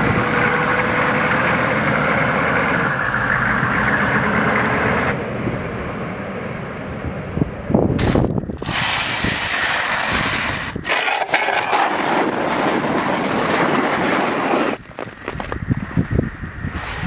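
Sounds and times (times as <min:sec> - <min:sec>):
snow shovels scraping pavement: 0:08.0 - 0:16.1, 0:16.7 - 0:17.0.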